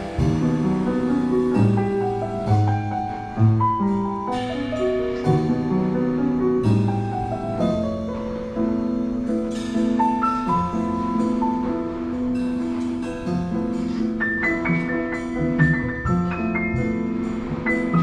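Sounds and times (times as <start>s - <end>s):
upright bass notes: 0.0s - 4.3s, 14.5s - 18.0s
piano melody and chords: 0.0s - 18.0s.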